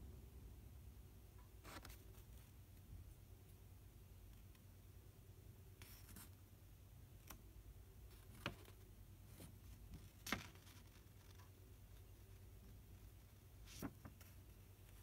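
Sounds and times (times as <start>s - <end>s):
paper leaflet crinkling: 13.1s - 15.0s.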